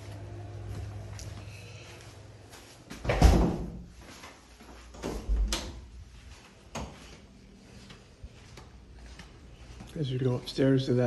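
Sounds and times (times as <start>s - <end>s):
door shutting thud: 3.0s - 3.8s.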